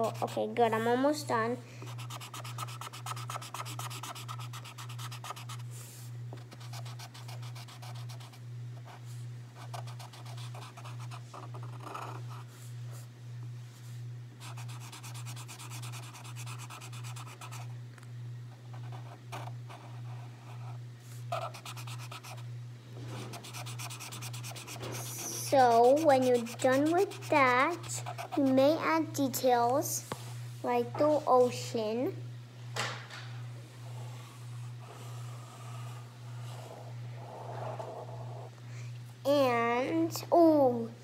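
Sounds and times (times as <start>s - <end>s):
marker scratching on paper: 0.0s - 0.5s, 1.9s - 5.6s, 6.4s - 9.0s, 9.6s - 12.5s, 14.4s - 17.7s, 18.8s - 22.4s, 23.2s - 28.6s.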